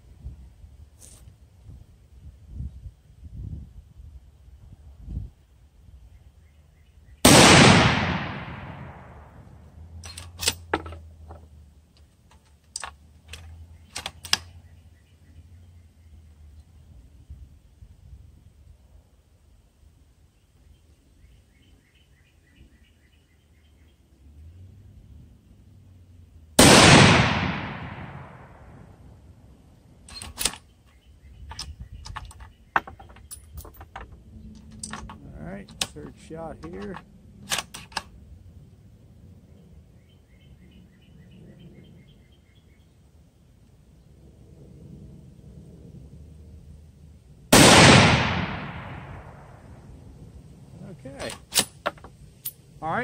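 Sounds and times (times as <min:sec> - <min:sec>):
rifle shot ringing: 0:07.2 - 0:09.4, 0:26.6 - 0:28.8, 0:47.5 - 0:49.7
rifle bolt metallic clicks: 0:10.0 - 0:11.0, 0:11.9 - 0:14.5, 0:30.1 - 0:30.7, 0:31.4 - 0:38.1.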